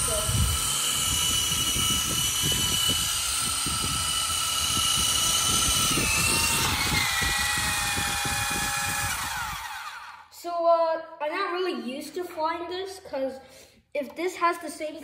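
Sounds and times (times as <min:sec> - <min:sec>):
gusty low rumble: 0:00.0 - 0:09.6
toy helicopter motor whine: 0:00.0 - 0:10.3.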